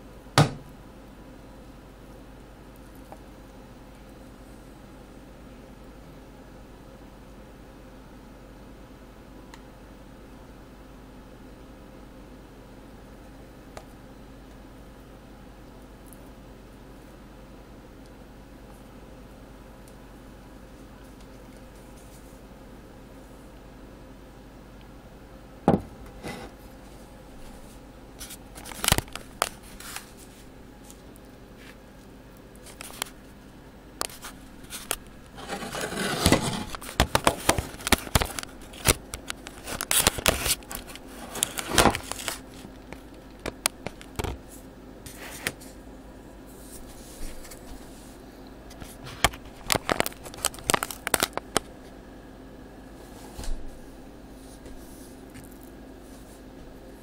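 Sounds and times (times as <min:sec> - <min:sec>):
foil pan crinkling: 0:34.0 - 0:42.8, 0:49.2 - 0:51.6
spatula scraping measuring cup: 0:35.4 - 0:36.8.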